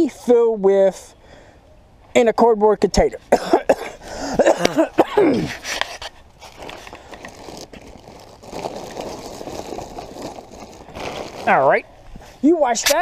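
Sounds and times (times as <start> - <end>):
rustling among dry leaves: 6.2 - 12.5.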